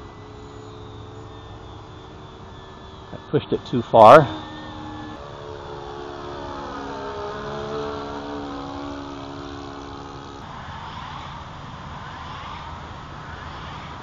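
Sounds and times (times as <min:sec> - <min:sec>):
steady hiss: 0:00.0 - 0:10.7
model plane engine flying past: 0:00.0 - 0:14.0.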